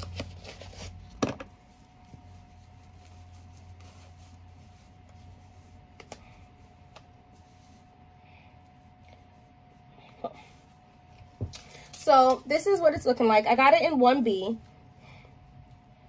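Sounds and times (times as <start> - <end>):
paper wrapper rustle: 0.0 - 6.2
cap rubbing on hair: 0.0 - 8.0
faint steady hum: 0.0 - 16.0.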